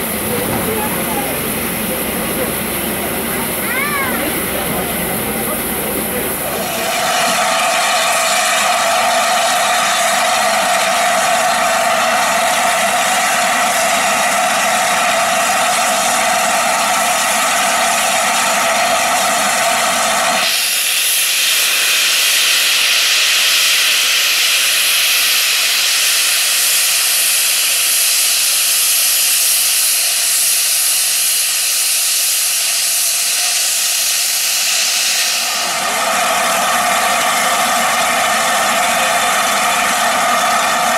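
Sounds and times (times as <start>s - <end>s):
sharp high steam hiss: 0.0s - 40.9s
steam locomotive hissing: 0.0s - 40.9s.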